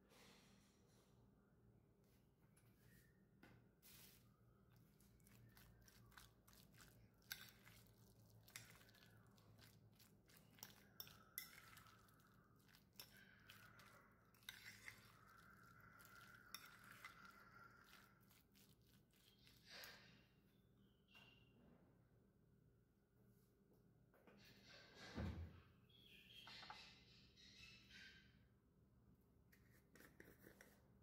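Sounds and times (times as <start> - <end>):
metal fork scraping a bowl: 5.2 - 20.1.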